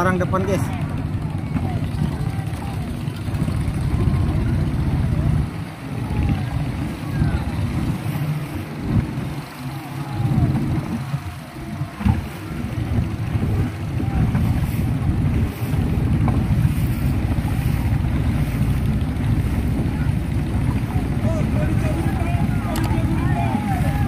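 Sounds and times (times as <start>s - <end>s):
boat motor running: 0.0s - 24.0s
wind buffeting microphone: 0.0s - 24.0s
distant shouting: 0.6s - 14.8s, 19.9s - 24.0s.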